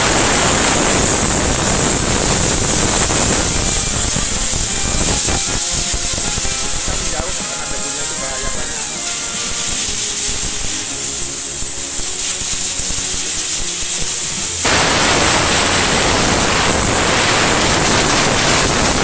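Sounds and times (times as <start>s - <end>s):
compressed-air blow gun blasting: 0.0s - 19.0s.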